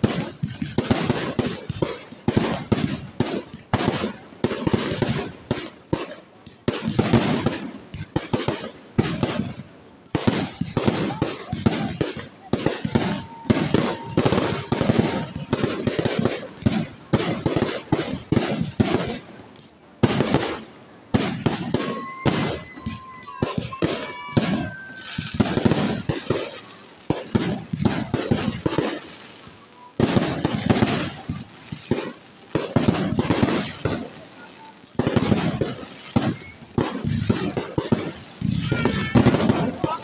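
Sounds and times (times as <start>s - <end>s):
firework shells bursting: 11.8s - 20.6s, 21.2s - 40.0s.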